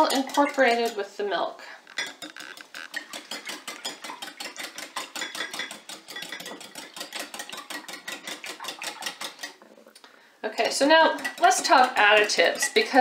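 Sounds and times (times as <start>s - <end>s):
whisk clicking against glass bowl: 2.0s - 9.6s, 10.7s - 13.0s.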